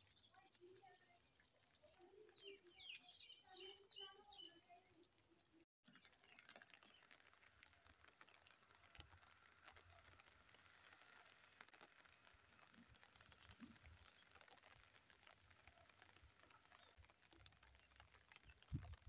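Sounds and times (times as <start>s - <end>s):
faint bird chirps: 0.0s - 5.6s
light rain hiss: 0.0s - 19.0s.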